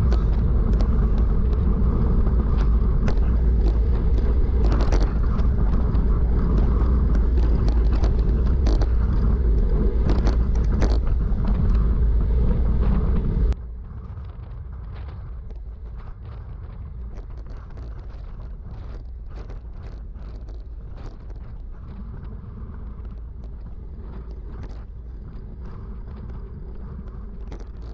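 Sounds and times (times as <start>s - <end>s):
scattered clicks: 0.0s - 13.3s
wind buffeting microphone: 0.0s - 27.9s.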